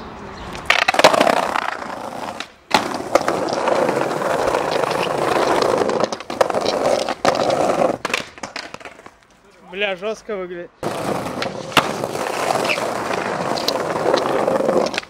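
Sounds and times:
skateboard wheels rolling on pavement: 0.0s - 10.2s, 10.8s - 15.0s
skateboard landing clack: 0.6s - 9.2s, 11.1s - 15.0s.

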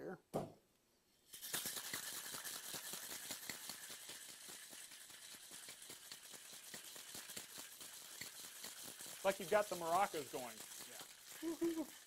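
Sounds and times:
ice rattling in cocktail shaker: 1.2s - 12.0s.

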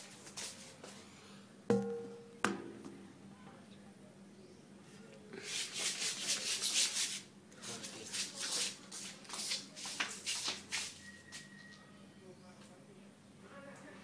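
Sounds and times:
sweeping on wet hard floor: 0.0s - 0.9s, 5.4s - 11.0s.

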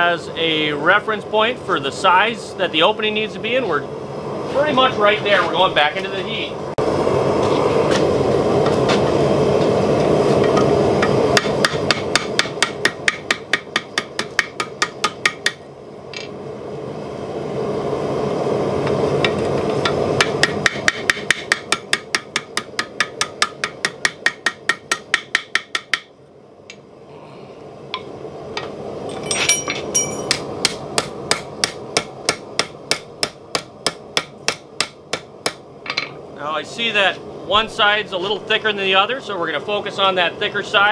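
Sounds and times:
hammer striking hot steel: 10.4s - 15.6s, 19.2s - 26.1s, 29.1s - 36.1s.

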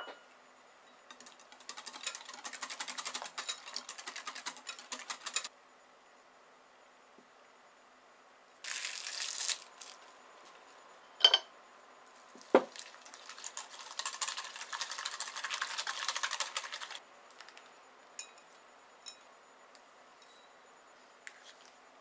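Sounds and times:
whisk beating in glass bowl: 1.1s - 5.5s, 12.8s - 17.0s
cling wrap crinkling: 8.6s - 10.5s.

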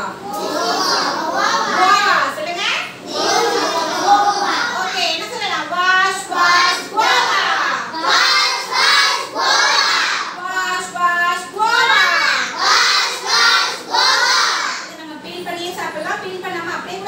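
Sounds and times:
children chanting together: 0.2s - 1.8s, 3.0s - 4.9s, 6.3s - 10.4s, 11.8s - 14.9s.

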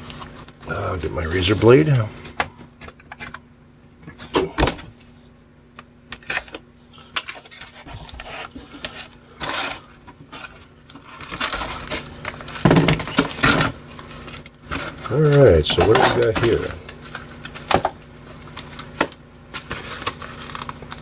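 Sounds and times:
paper and cardboard rustling: 6.2s - 21.0s.

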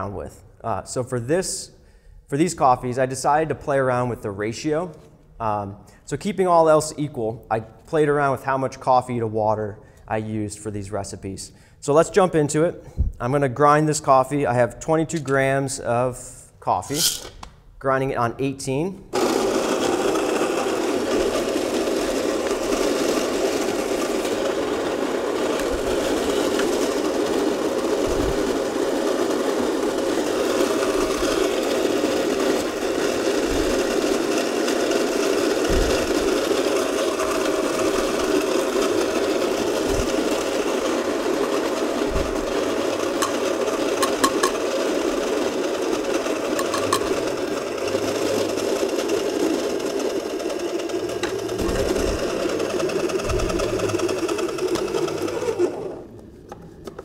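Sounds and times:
coffee grinder running: 17.0s - 17.4s, 19.1s - 56.2s.

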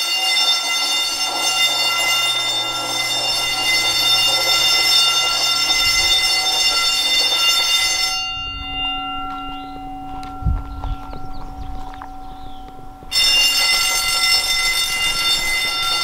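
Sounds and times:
fire alarm bell ringing: 0.0s - 16.0s
low footstep thumps: 9.2s - 13.2s.

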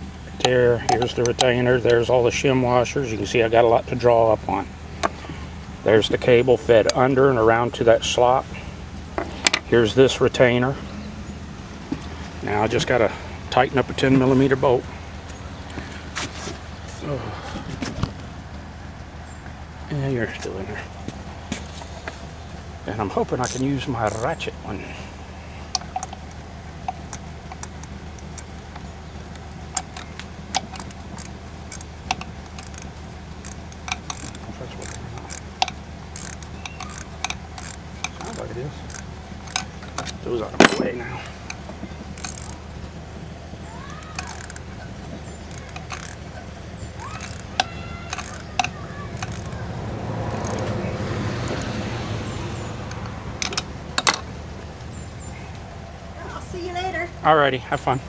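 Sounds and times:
car engine running: 0.0s - 58.0s
ratchet clicking: 23.4s - 24.3s, 29.7s - 39.7s, 41.5s - 42.6s, 43.8s - 44.8s, 45.4s - 49.6s, 50.2s - 50.7s, 51.5s - 51.7s
sharp clicks: 47.0s - 49.6s.

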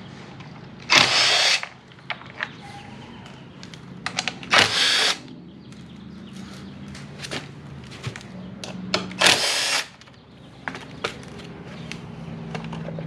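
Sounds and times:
cordless drill running: 0.9s - 1.6s, 4.5s - 5.2s, 9.2s - 9.9s
tools and plastic parts clicking: 3.6s - 4.6s.

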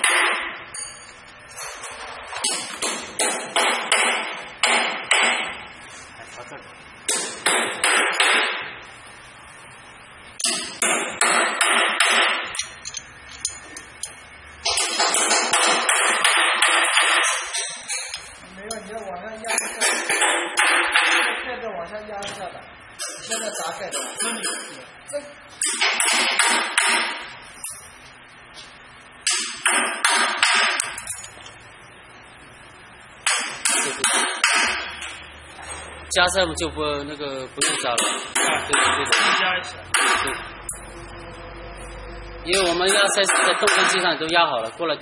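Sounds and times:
metal tool clinking on steel: 0.8s - 1.2s, 12.6s - 14.2s, 30.8s - 31.5s
metallic clanks: 12.5s - 15.0s, 30.7s - 31.6s.

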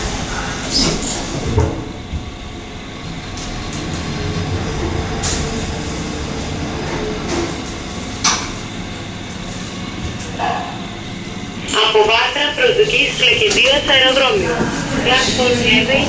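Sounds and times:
lift car rumble: 0.0s - 16.0s
lift doors clunk and slide: 3.1s - 8.8s.

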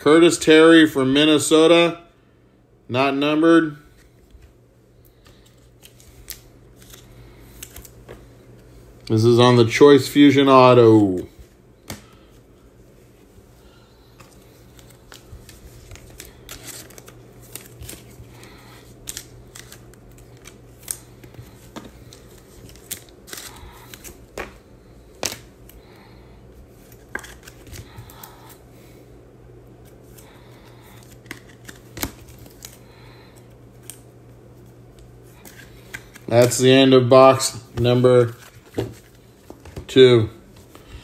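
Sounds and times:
low steady hum: 0.0s - 41.0s
cards and plastic sleeves clicking: 5.1s - 8.2s, 14.2s - 24.6s, 35.0s - 36.7s.

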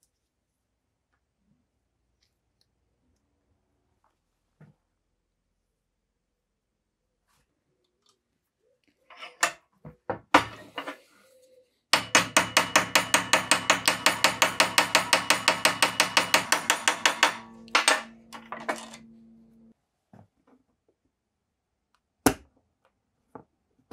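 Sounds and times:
hammer striking steel rod: 12.0s - 19.7s
steel ringing: 12.0s - 19.7s.

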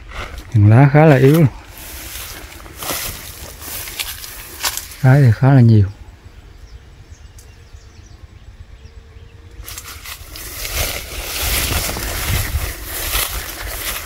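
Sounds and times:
steady rushing and rustling: 0.0s - 6.4s, 9.5s - 14.0s
wind on microphone: 5.8s - 14.0s.

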